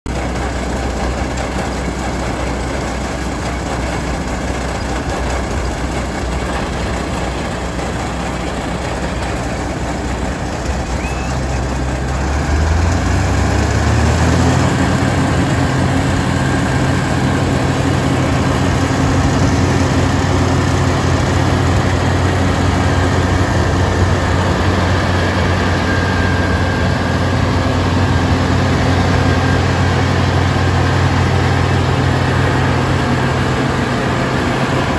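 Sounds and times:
diesel engine running and revving: 0.1 - 34.9.

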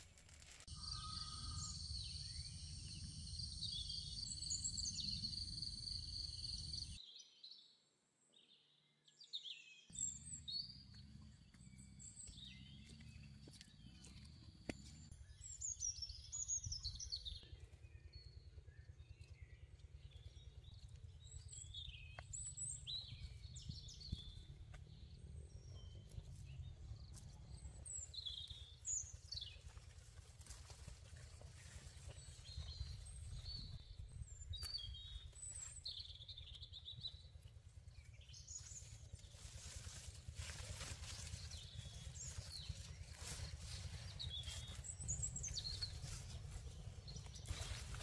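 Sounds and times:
birds chirping: 0.7 - 7.0, 9.9 - 48.0
faint low rumble: 10.0 - 48.0.

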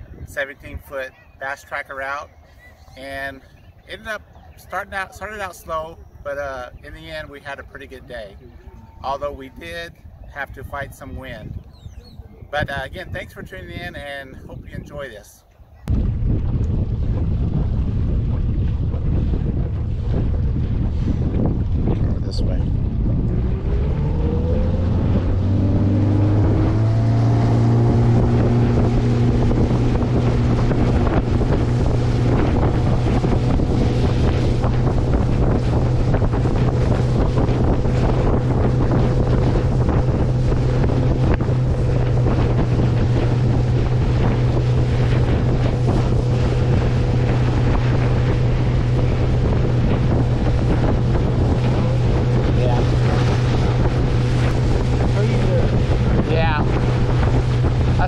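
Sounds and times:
wind buffeting microphone: 0.0 - 58.0
outboard motor running: 15.9 - 58.0.

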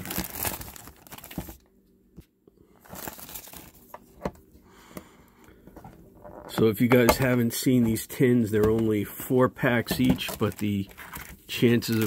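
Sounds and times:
plastic wrap crinkling and tearing: 0.0 - 1.6, 2.8 - 3.9, 9.8 - 12.0.

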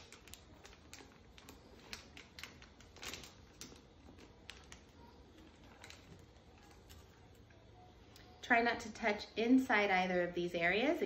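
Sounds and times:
packet rustling: 0.0 - 7.5
small plastic clicks and crinkles: 0.0 - 7.6.

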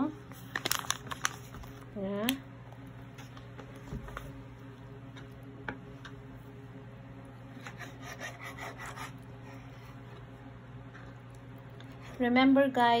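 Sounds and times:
steady low hum: 0.0 - 13.0
knife sawing through meat: 7.6 - 9.6.

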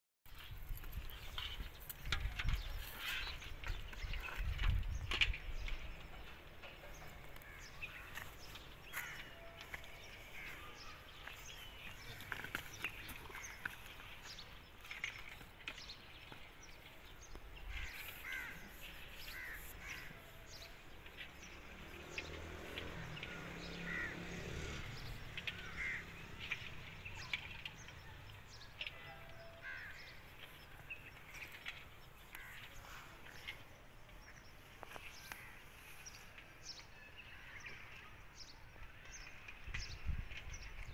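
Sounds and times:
birds chirping and cawing: 0.4 - 40.9.

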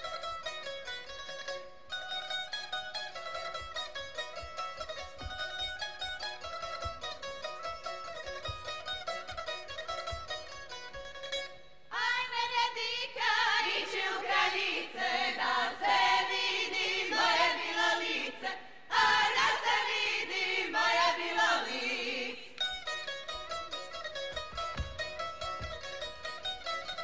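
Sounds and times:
plucked string instruments: 0.0 - 27.0
women singing folk song: 11.9 - 22.6.

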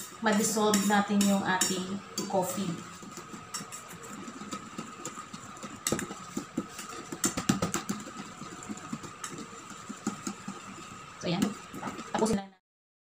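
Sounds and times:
whisk clicking against metal bowl: 2.9 - 12.2.

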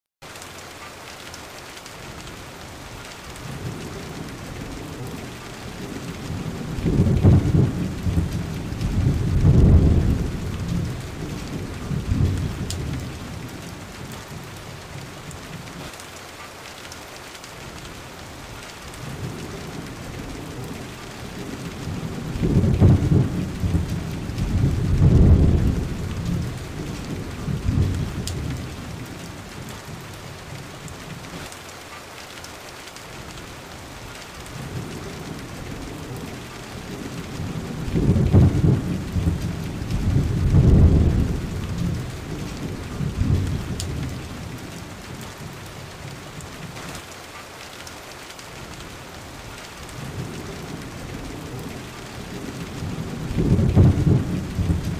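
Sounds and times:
steady rain: 0.2 - 54.9
low thunder rolling: 3.4 - 15.6, 18.9 - 31.3, 34.5 - 46.8, 49.9 - 54.9.

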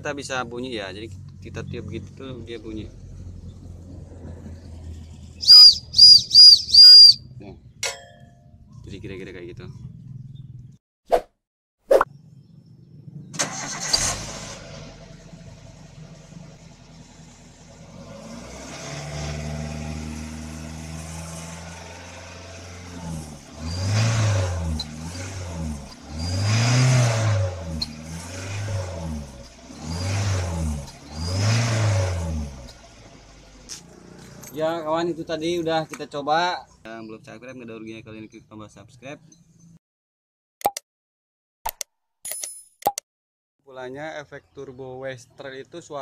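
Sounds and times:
car engine starting and revving: 1.1 - 6.1, 12.4 - 34.8
faint exhaust whistle: 5.4 - 7.4.

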